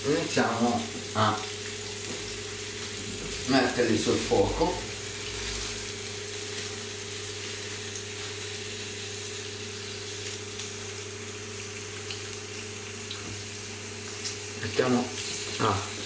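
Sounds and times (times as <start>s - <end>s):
low steady hum: 0.0s - 7.8s
patty sizzling on grill pan: 0.0s - 16.0s.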